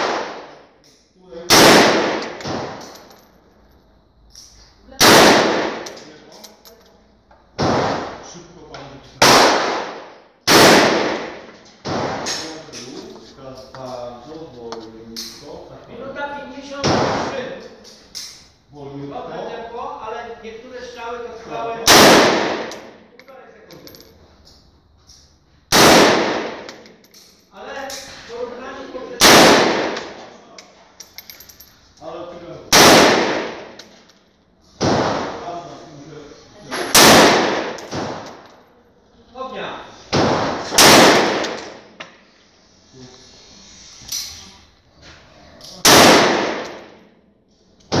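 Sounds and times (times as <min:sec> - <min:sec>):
rifle shots: 0:00.0 - 0:00.6, 0:01.5 - 0:02.8, 0:05.0 - 0:05.9, 0:07.6 - 0:08.2, 0:09.2 - 0:12.5, 0:21.8 - 0:23.0, 0:25.7 - 0:26.8, 0:29.2 - 0:30.2, 0:32.7 - 0:33.8, 0:34.8 - 0:35.4, 0:36.9 - 0:38.4, 0:40.1 - 0:41.9, 0:45.8 - 0:47.0.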